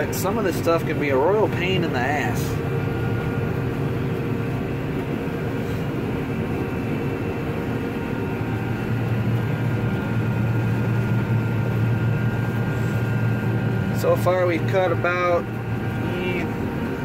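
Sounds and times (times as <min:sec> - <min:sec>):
combine harvester engine hum: 0:00.0 - 0:17.0
faint steady whines: 0:00.0 - 0:17.0.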